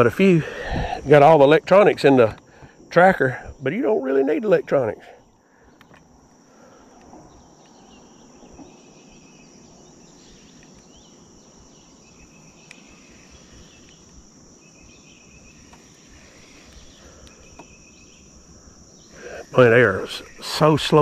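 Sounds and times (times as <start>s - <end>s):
insects droning: 0.0s - 21.0s
low insect trill: 0.0s - 21.0s.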